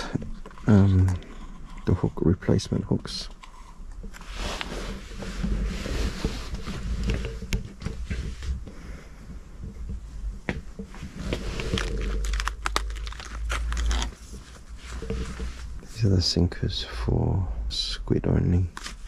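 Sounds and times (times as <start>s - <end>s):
plastic packaging rustling: 11.0s - 15.8s.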